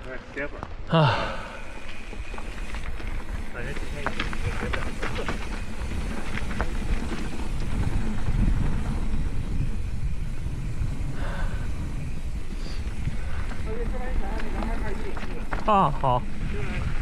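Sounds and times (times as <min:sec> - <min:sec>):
sharp clicks and rattles: 0:01.8 - 0:09.6
wind rumble on microphone: 0:02.0 - 0:17.0.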